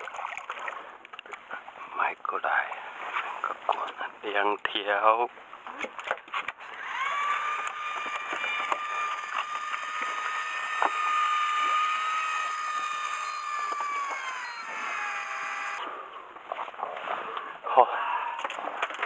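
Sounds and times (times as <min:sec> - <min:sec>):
small electric motor whining: 0:06.6 - 0:15.9.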